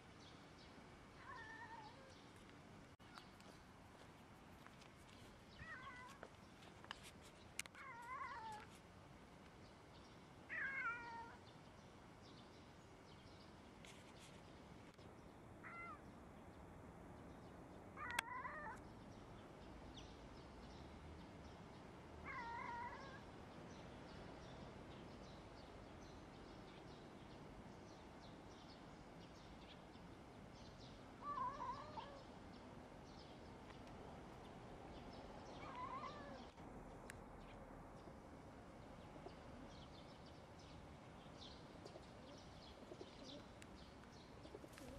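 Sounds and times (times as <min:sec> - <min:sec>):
cat meowing: 0:31.2 - 0:32.3, 0:35.6 - 0:36.5.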